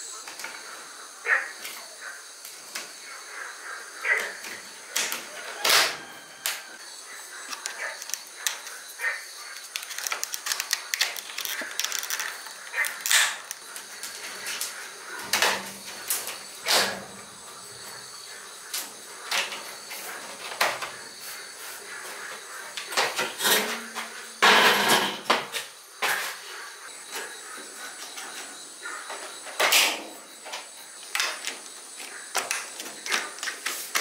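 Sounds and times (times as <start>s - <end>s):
tools clicking and knocking: 7.5s - 8.7s, 9.6s - 13.6s.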